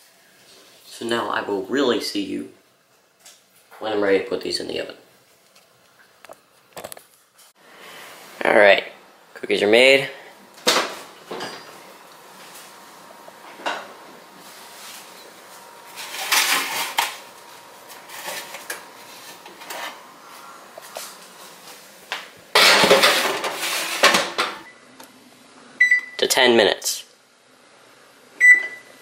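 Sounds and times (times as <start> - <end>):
baking sheets scraping on oven racks: 13.5 - 24.6.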